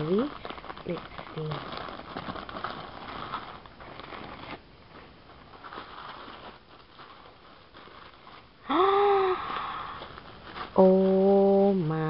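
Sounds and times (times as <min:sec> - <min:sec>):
plastic bag crinkling open: 0:00.0 - 0:11.8
tissue paper rustling: 0:00.0 - 0:12.0
person exclaiming oh: 0:08.7 - 0:09.5.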